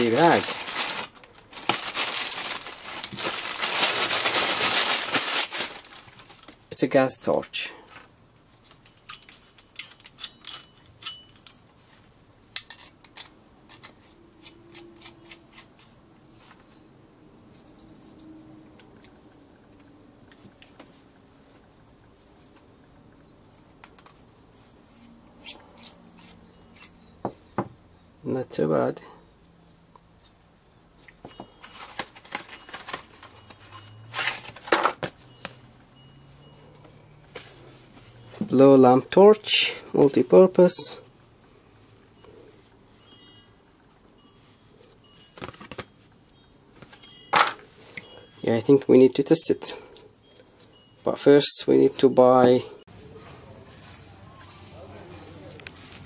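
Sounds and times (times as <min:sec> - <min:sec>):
paper rustling and crackling: 0:00.0 - 0:06.6, 0:31.6 - 0:35.2, 0:55.4 - 0:56.0
metal parts clicking and clinking: 0:08.7 - 0:16.6, 0:23.6 - 0:27.2, 0:46.9 - 0:48.4.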